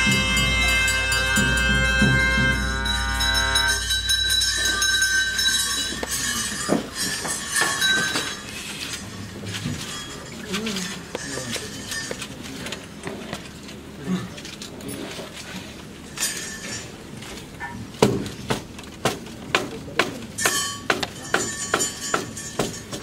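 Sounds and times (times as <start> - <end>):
wind instrument held note: 0.0 - 5.1
sharp strikes: 0.0 - 7.8
bells jingling and clinking: 0.0 - 13.0, 16.1 - 17.2, 20.4 - 23.0
crowd voices: 0.0 - 14.6.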